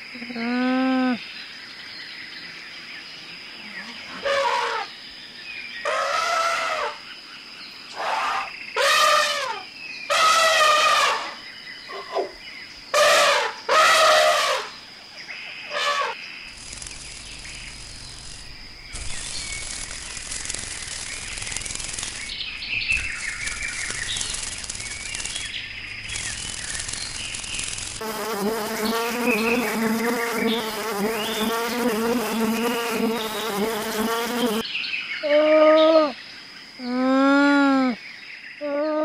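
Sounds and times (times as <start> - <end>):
outdoor background with low hum: 0.0 - 39.0
elephant trumpeting: 4.2 - 4.9, 8.0 - 11.4, 13.0 - 14.7.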